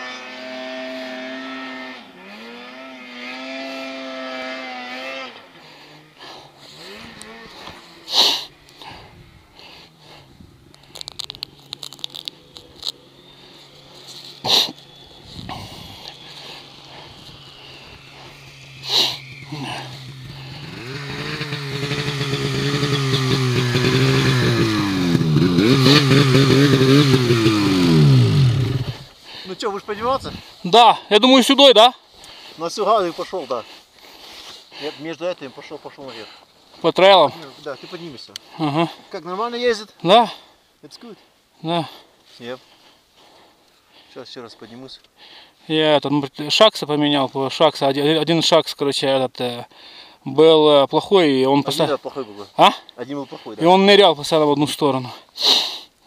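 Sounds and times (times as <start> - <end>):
snowmobile engine running: 0.0 - 31.0.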